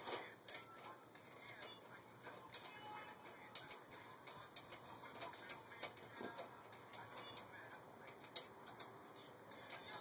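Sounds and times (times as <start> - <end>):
hand tools clicking on metal: 2.4 - 10.0.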